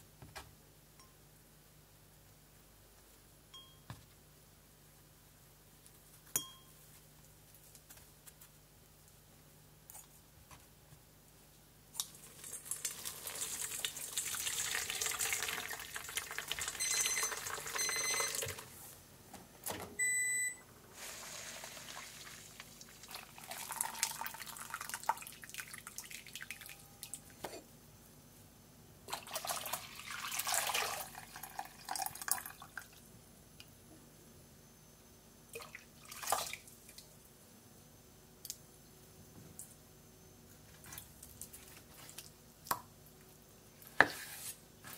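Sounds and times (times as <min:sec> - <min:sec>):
short electronic beeps: 0:16.8 - 0:18.4.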